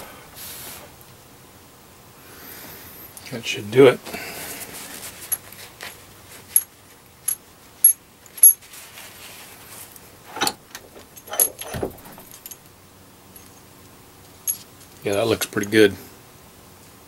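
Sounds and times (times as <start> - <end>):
ringing metal clinks: 11.2 - 12.6, 14.4 - 14.7
dull thump: 11.6 - 12.3.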